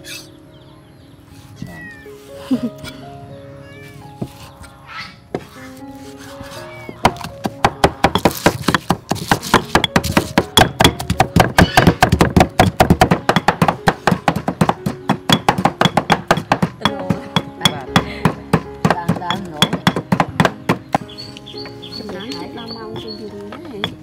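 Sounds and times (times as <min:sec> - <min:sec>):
background music: 0:00.0 - 0:24.0
knife chopping on cutting board: 0:07.1 - 0:16.7.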